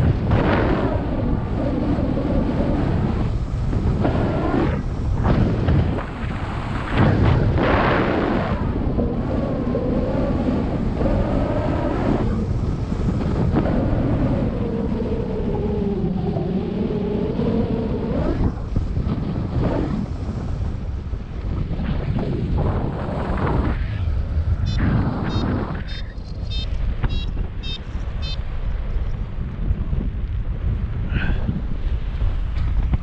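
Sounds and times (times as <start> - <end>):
wind buffeting microphone: 0.0 - 33.0
whistle-like tone: 26.5 - 28.4.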